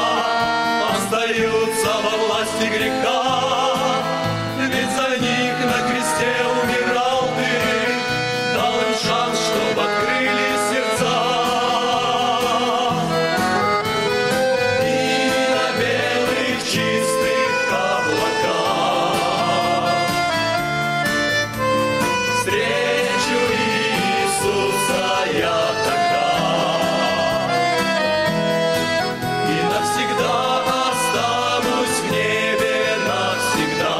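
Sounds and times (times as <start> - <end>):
men's vocal group singing a hymn: 0.0 - 20.6, 22.2 - 33.9
instrumental accompaniment: 0.0 - 33.9.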